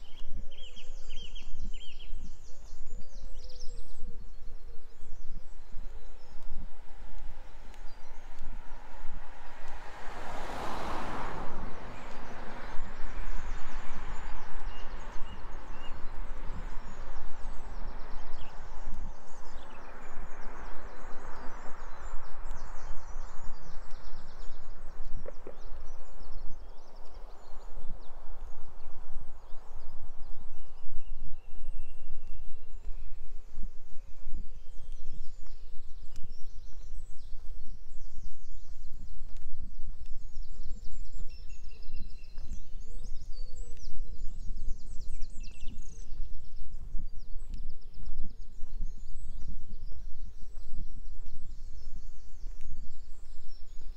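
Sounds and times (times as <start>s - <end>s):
footsteps walking: 34.2s - 53.9s.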